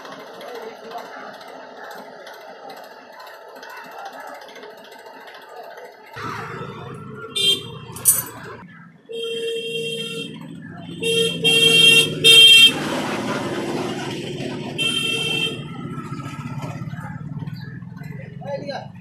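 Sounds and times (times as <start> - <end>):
vehicle horn honking: 7.3 - 8.3, 9.1 - 12.8, 14.8 - 15.7.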